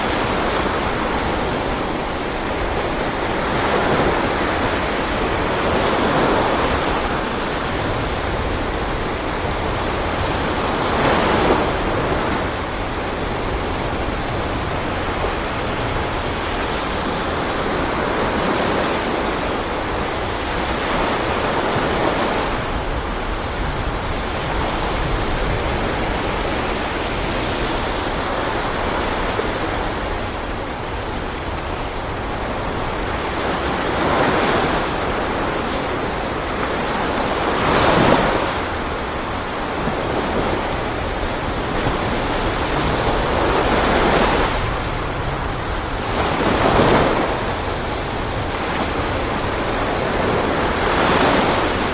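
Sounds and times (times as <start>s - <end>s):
sea waves: 0.0s - 51.9s
wind: 0.0s - 51.9s.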